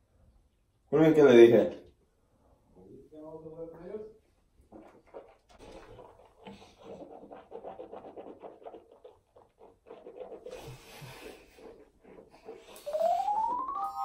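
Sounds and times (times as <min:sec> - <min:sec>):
mouthwash sloshing in mouth: 0:04.3 - 0:13.8
hands rubbing through hair: 0:06.1 - 0:14.0.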